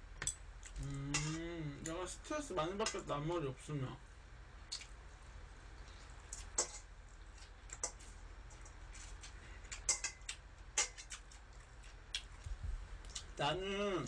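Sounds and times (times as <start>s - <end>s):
chopsticks clinking in metal bowl: 9.7s - 11.2s.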